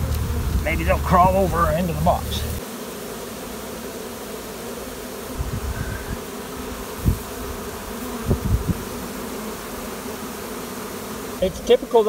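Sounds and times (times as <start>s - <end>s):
low thumps: 0.0s - 2.6s
bees buzzing: 0.0s - 12.0s.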